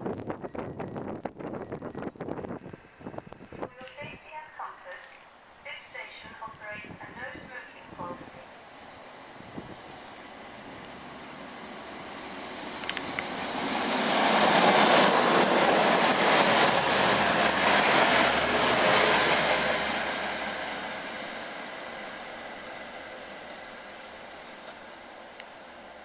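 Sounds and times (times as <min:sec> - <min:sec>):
train passing at speed: 0:00.2 - 0:26.0.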